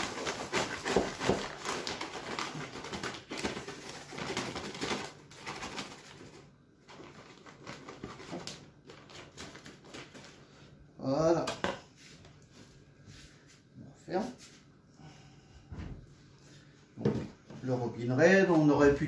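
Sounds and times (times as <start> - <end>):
plastic bag rustling: 0.0 - 10.8.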